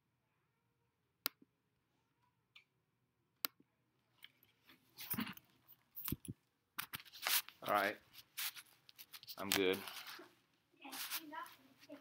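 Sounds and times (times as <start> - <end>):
rustling handling noises: 4.1 - 12.0.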